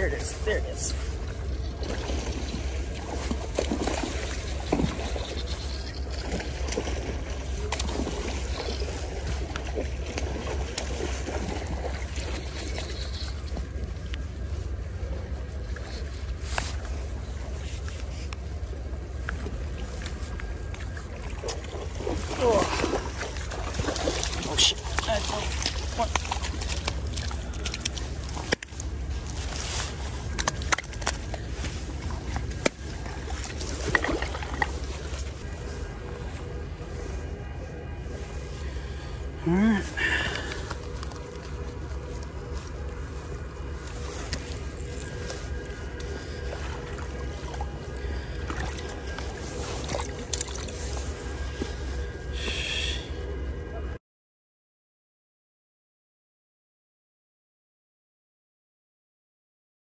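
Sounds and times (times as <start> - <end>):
creek water running: 0.0 - 36.6, 37.7 - 52.0
wind rumbling on microphone: 0.0 - 52.4
fish thrashing at surface: 43.9 - 51.2.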